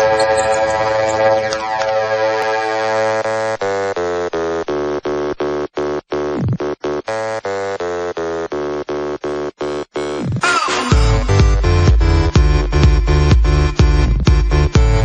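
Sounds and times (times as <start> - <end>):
synthesizer chord stabs: 0.0 - 3.9, 10.4 - 13.7.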